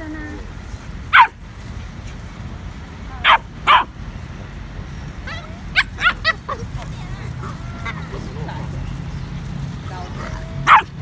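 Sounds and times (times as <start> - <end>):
small dog yapping: 1.1 - 1.4, 5.3 - 6.4, 10.4 - 10.9.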